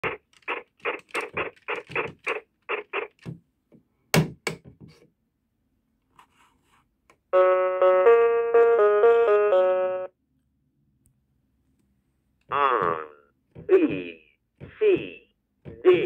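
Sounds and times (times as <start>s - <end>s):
toy typewriter keys pressed: 0.3s - 2.4s
electronic toy melody: 7.4s - 10.1s.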